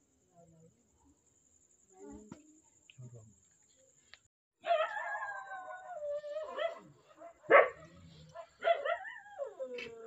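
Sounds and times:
dog barking: 0:04.6 - 0:05.0, 0:06.4 - 0:09.2.

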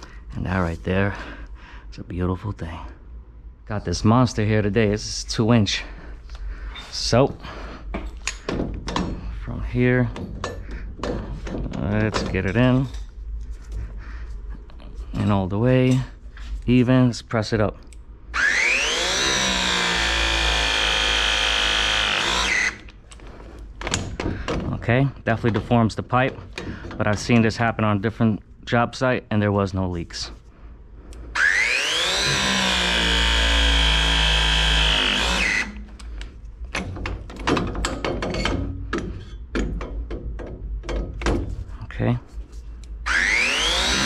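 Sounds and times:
clicks and knocks of metal tools: 0:07.9 - 0:09.3, 0:10.1 - 0:13.8, 0:35.8 - 0:41.4
pipe press tool motor whining: 0:18.3 - 0:23.0, 0:31.4 - 0:36.0, 0:43.0 - 0:44.0.

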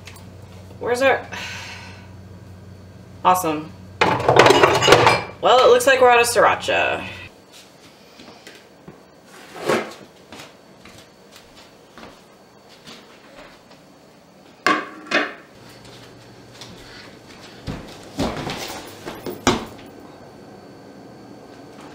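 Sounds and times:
body thudding on wooden floor: 0:17.6 - 0:19.9.

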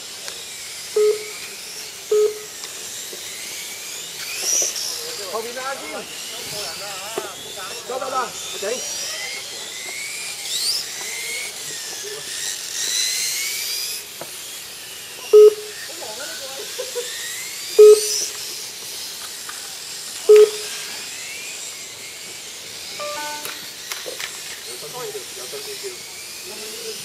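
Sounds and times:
electric motor whines: 0:00.0 - 0:27.0
short electronic beeps: 0:01.0 - 0:01.4, 0:02.1 - 0:02.5, 0:15.4 - 0:15.7, 0:17.8 - 0:18.3, 0:20.3 - 0:20.7, 0:23.0 - 0:23.7.

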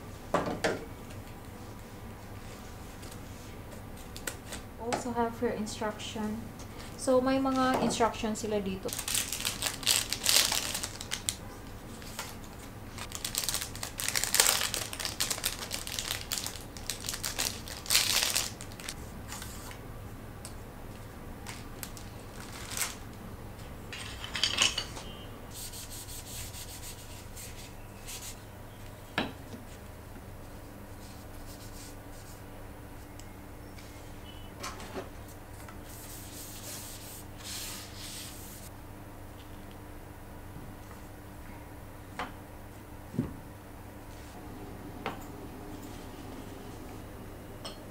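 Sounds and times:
plastic wrapping crinkling: 0:08.8 - 0:19.0, 0:21.4 - 0:23.2.

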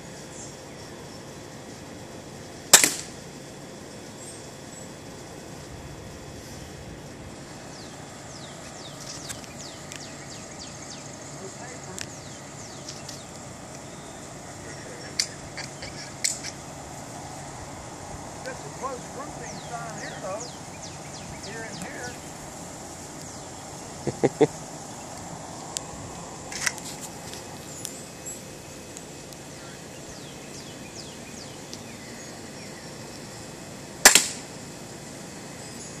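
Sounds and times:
steady low hum: 0:00.0 - 0:36.0
air pistol shot: 0:02.7 - 0:03.2, 0:34.0 - 0:34.5
birds chirping: 0:07.3 - 0:33.6.

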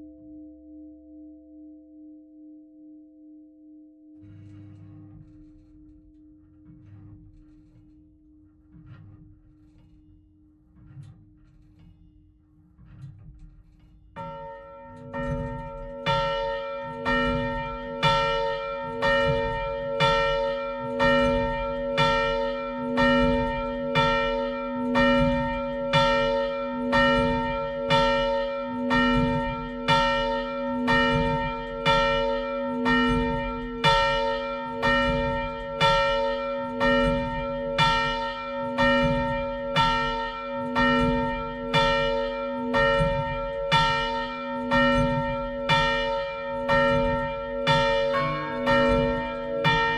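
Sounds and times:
church bell ringing: 0:14.2 - 0:49.9.

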